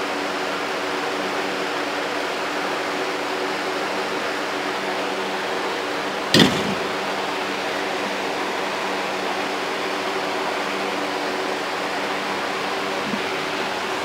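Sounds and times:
background hiss and hum: 0.0s - 14.0s
bolt knocking on metal table: 6.3s - 6.9s.

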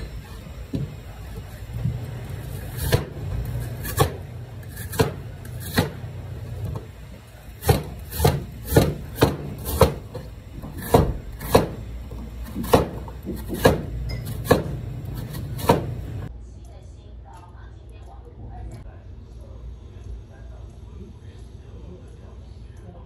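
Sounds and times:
knife chopping on cutting board: 2.4s - 6.9s, 7.5s - 16.3s.

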